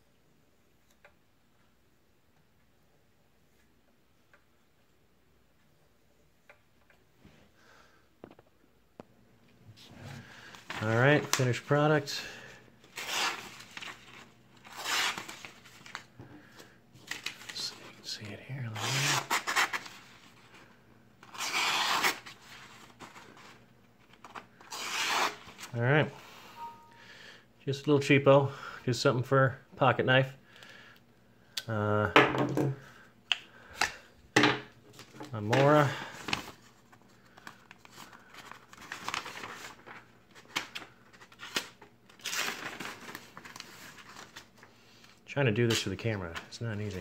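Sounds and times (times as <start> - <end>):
paper rustling and crinkling: 9.8 - 11.7, 12.8 - 18.1, 18.9 - 25.8, 34.9 - 47.0
knife slicing paper: 14.7 - 15.5, 21.3 - 22.3, 24.7 - 25.5.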